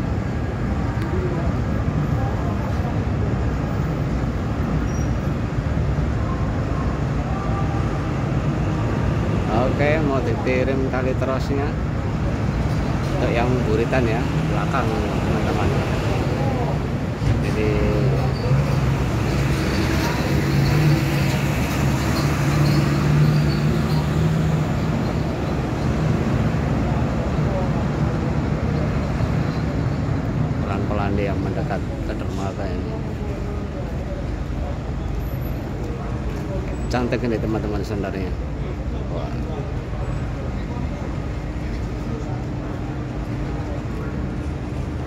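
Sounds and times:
ferry engines rumbling: 0.0s - 45.0s
heavy truck driving past: 12.5s - 30.6s.

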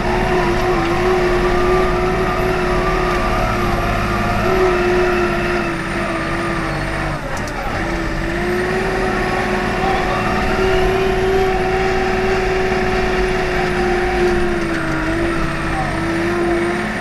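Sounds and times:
diesel engine under load: 0.0s - 17.0s
clicks: 7.3s - 7.6s.

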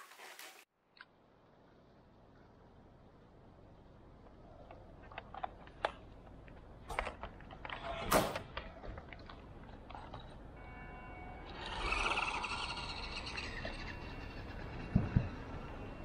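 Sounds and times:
toy truck electric motor whine: 10.8s - 16.0s.

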